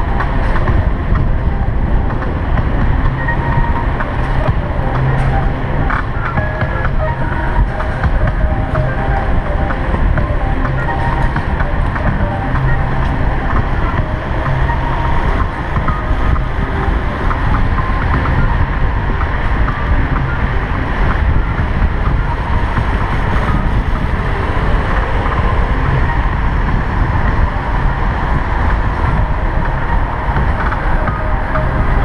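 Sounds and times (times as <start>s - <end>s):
wind rumble on microphone: 0.0s - 32.0s.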